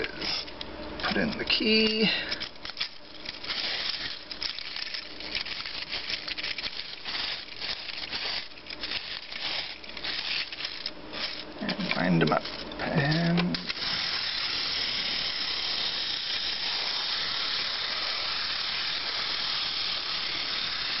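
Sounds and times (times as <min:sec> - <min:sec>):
clockwork spring ratchet clicks: 0:13.1 - 0:21.0.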